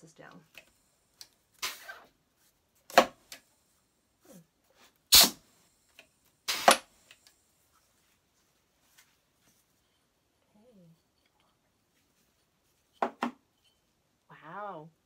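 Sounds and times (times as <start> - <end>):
compressed air hisses from press: 5.1 - 5.5, 6.5 - 6.8.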